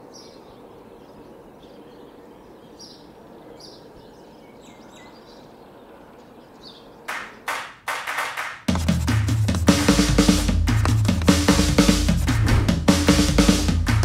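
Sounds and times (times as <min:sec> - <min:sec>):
small birds chirping: 0:00.0 - 0:07.8
outdoor ambience: 0:00.0 - 0:14.0.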